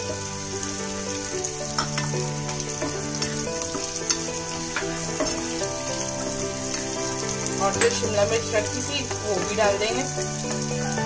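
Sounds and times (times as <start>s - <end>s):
food sizzling in hot oil: 0.0s - 11.0s
soft background music: 0.0s - 11.0s
spatula scraping and tapping pan: 1.6s - 10.6s.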